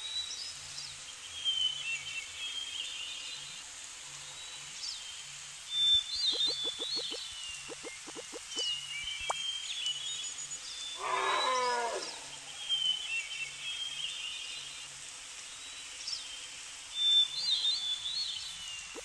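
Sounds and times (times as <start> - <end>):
birds chirping: 5.9 - 9.6, 18.4 - 19.0
wild animal cry: 11.0 - 12.4.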